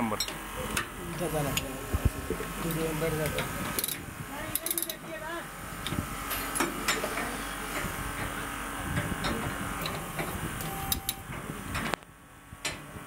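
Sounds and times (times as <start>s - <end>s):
torque wrench running: 2.3s - 11.2s
ratchet clicks: 2.7s - 5.0s.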